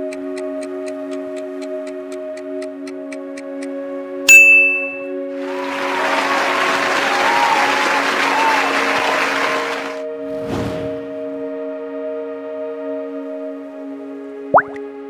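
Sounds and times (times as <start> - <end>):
background music: 0.0 - 15.0
bright bell ding: 4.3 - 5.1
applause: 5.4 - 10.0.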